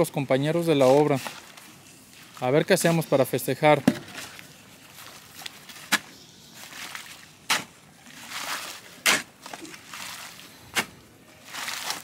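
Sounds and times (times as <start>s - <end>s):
shovel scraping: 5.7s - 12.0s
shovel strokes in wet sand: 5.8s - 12.0s.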